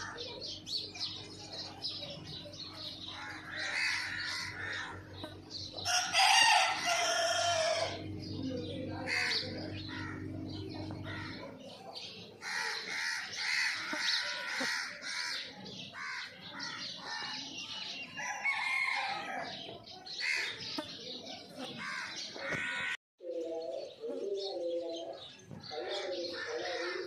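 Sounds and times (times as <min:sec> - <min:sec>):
chickens clucking: 0:00.0 - 0:15.9
sparrows chirping: 0:00.0 - 0:27.0
rooster crowing: 0:05.8 - 0:08.0.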